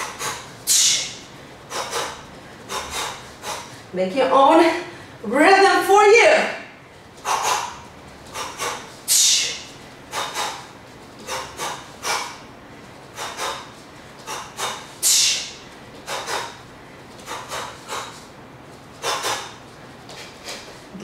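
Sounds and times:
woman exhaling sharply: 0.0s - 3.7s, 8.4s - 10.6s, 14.3s - 16.5s.

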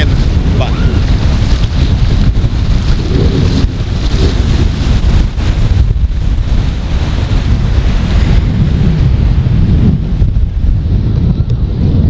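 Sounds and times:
ocean surf breaking: 0.0s - 11.1s
wind buffeting microphone: 0.0s - 12.0s.

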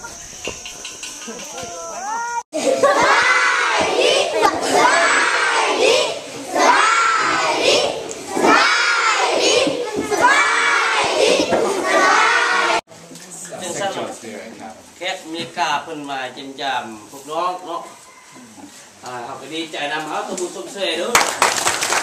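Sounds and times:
children calling out in unison: 1.2s - 12.8s.

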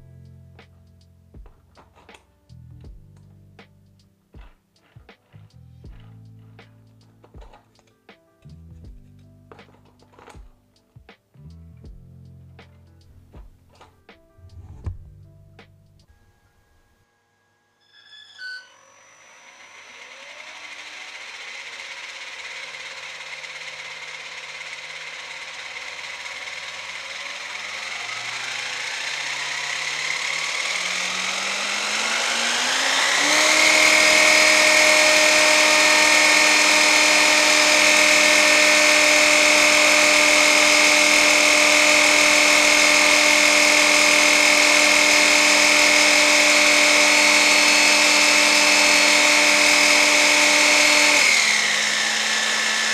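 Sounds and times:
model engine whine: 16.7s - 52.9s.

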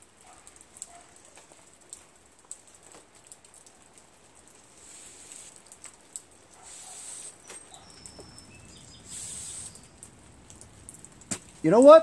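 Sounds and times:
hissy rustles: 4.6s - 11.6s
faint high chirps: 6.6s - 10.0s.

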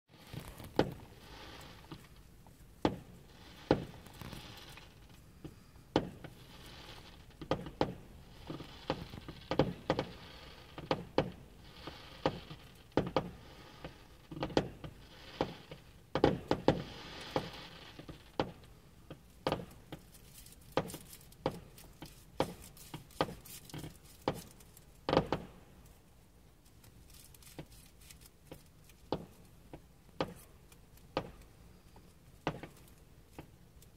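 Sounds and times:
fizzing crackle of fireworks: 0.1s - 26.0s
fireworks banging: 0.2s - 2.2s, 2.8s - 20.1s, 20.7s - 25.7s.

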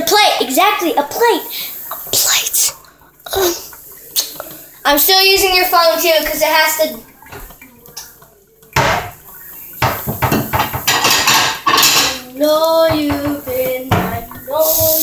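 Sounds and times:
dishes and cutlery clattering: 8.7s - 15.0s.

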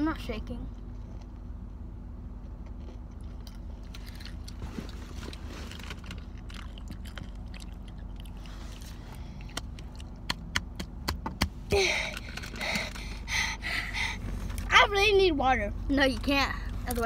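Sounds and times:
steady low hum: 0.0s - 17.0s
crunchy chewing of chips: 2.4s - 10.2s.

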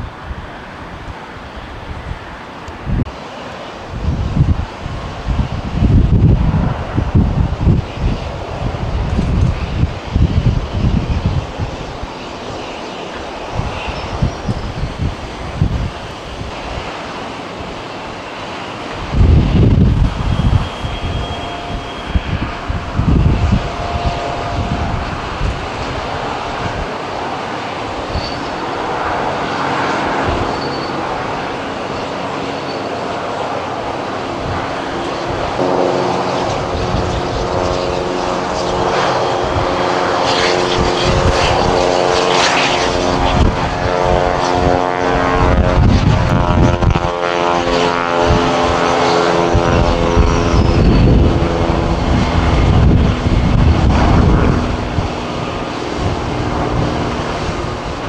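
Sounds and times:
jet engine whine and roar: 0.0s - 58.0s
low rumble: 19.0s - 27.0s, 50.7s - 58.0s.

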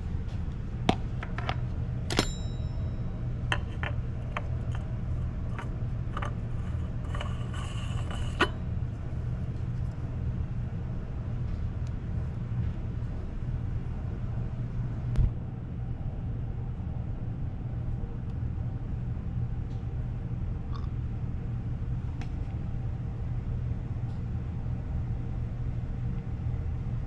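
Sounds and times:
steady low hum: 0.0s - 27.0s
short metallic ring: 2.1s - 3.9s.

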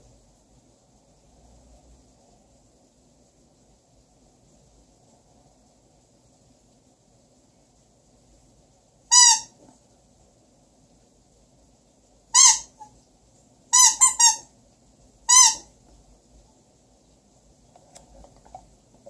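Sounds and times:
squeaky toy squeaking: 9.1s - 9.6s, 12.4s - 12.9s, 13.8s - 14.5s, 15.3s - 15.7s.

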